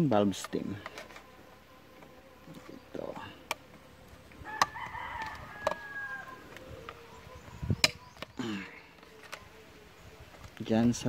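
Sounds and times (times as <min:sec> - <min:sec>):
rooster crowing: 0:04.4 - 0:07.4.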